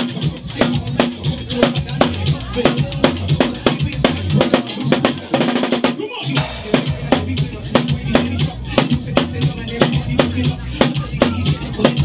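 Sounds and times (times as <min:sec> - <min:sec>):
drum kit playing a beat: 0:00.0 - 0:12.0
heavy bass line: 0:00.0 - 0:12.0.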